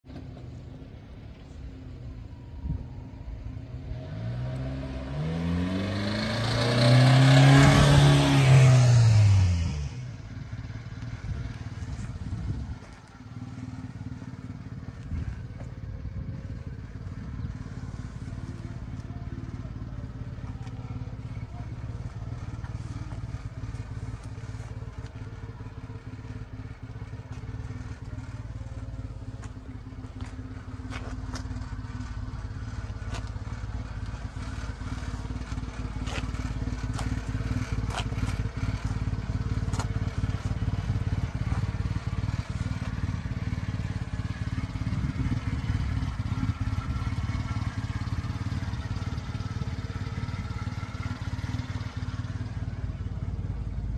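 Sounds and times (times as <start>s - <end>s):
small truck engine idling: 10.0s - 53.9s.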